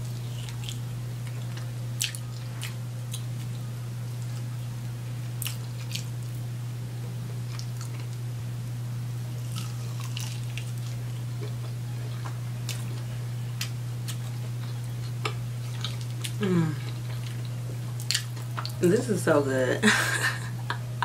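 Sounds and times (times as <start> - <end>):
chewing chicken wing crunches: 0.0 - 4.5, 5.4 - 6.4, 9.4 - 13.0, 13.6 - 18.8
steady low hum: 0.0 - 21.0.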